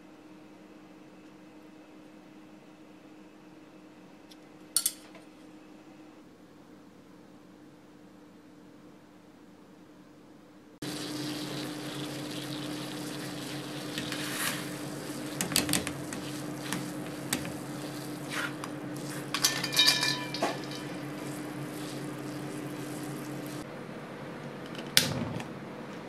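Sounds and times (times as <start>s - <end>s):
gas burner hiss: 10.8s - 19.4s
wire strainer clinking on saucepan: 19.3s - 21.1s.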